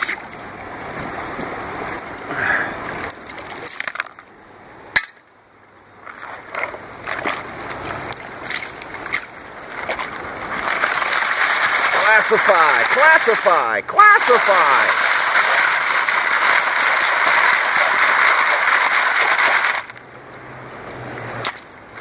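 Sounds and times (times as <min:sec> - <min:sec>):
water sloshing in gold pan: 0:06.1 - 0:20.0
gravel rattling in plastic pan: 0:10.5 - 0:20.0
stones clicking: 0:14.3 - 0:20.0.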